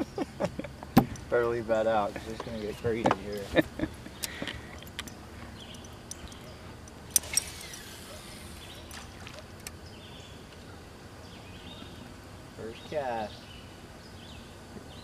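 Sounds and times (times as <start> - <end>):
calm lake ambience: 0.0 - 15.0
fishing reel clicks: 7.1 - 8.8
fishing line hiss: 7.1 - 9.8.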